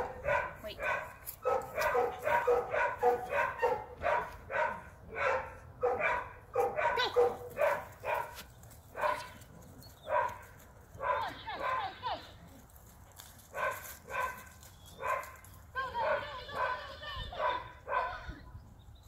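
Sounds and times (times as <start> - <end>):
dog barking: 0.0 - 8.4, 9.0 - 9.4, 10.1 - 10.4, 11.0 - 12.0, 13.5 - 15.4, 16.0 - 18.3.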